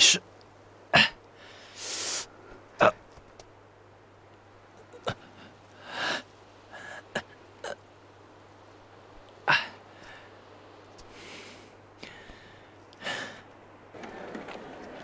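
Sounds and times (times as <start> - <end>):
man breathing sharply: 1.4 - 2.4, 9.5 - 10.4, 11.1 - 13.5.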